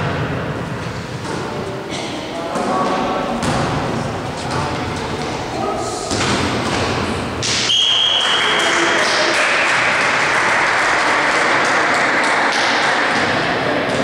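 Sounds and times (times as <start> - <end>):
crowd cheering: 7.6 - 13.4
referee's whistle blast: 7.7 - 8.6.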